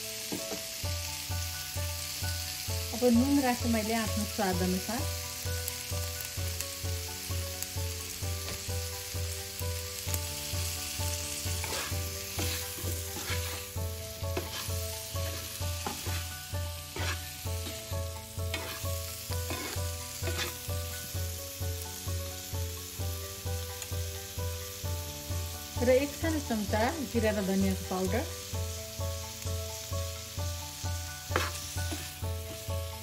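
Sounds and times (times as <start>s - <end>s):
spatula scraping frying pan: 11.2s - 21.0s, 31.2s - 32.3s.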